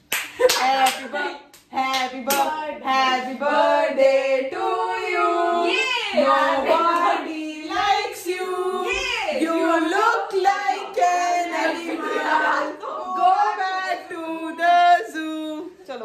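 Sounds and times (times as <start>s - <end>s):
hand claps: 0.0s - 2.5s
women singing together: 0.5s - 15.9s.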